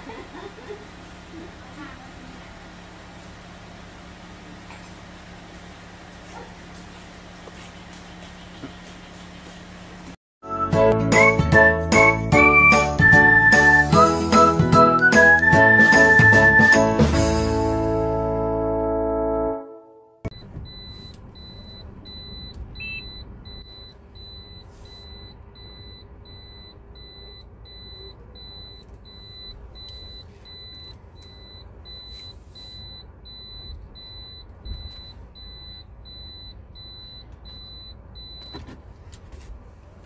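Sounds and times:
car engine humming: 0.0 - 10.2, 20.3 - 40.0
car warning chime beeping: 20.3 - 38.7.

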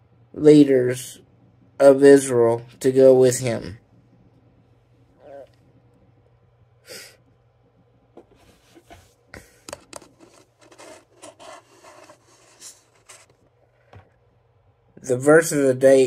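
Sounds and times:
steady low hum: 0.0 - 16.0
rubbing and scraping: 8.2 - 13.9.

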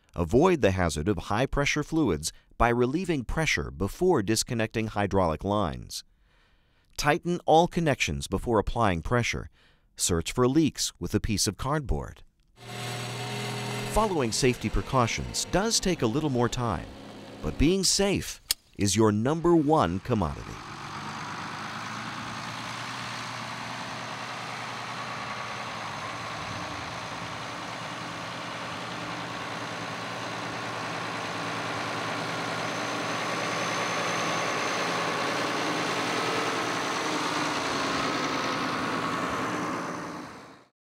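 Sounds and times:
tractor engine running: 12.6 - 18.7, 19.3 - 40.7.

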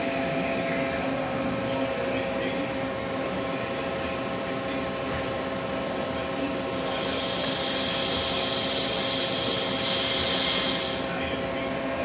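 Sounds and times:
compressed air hissing: 6.7 - 11.2.

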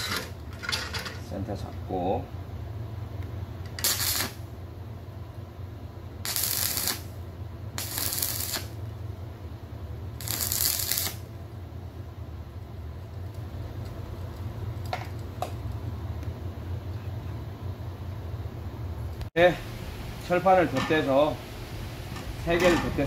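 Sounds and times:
steady low hum: 0.0 - 23.0
welding arc crackling and sizzling: 3.6 - 4.6, 6.2 - 9.0, 10.1 - 11.4, 19.1 - 23.0.

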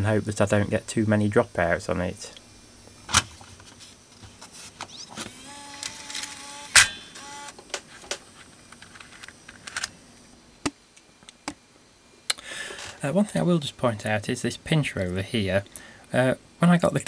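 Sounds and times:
tape mechanism motor whirring: 4.8 - 7.8.

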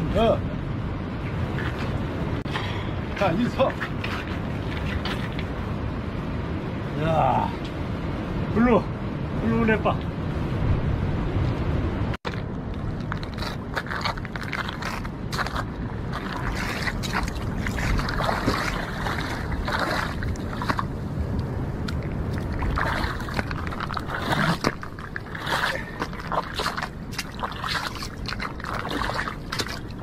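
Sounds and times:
water splashing and sloshing: 0.8 - 6.3, 12.2 - 30.0.

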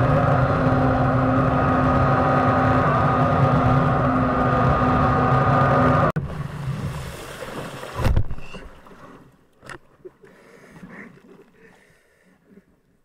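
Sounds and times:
water washing along hull: 0.0 - 12.6
small splashes: 6.3 - 11.9
dull thump of bow hitting bank: 8.0 - 8.6.

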